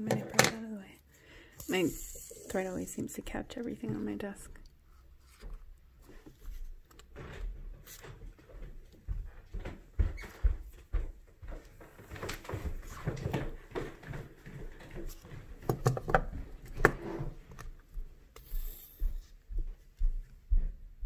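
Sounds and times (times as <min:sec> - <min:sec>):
fingers rubbing beaded fabric: 0:01.6 - 0:03.0
needle and thread scraping: 0:01.6 - 0:03.0.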